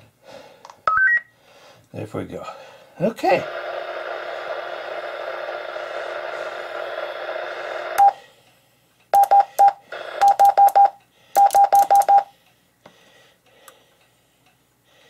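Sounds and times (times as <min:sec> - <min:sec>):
radio speaker hiss: 0:03.0 - 0:08.0
key beeps: 0:09.2 - 0:12.3.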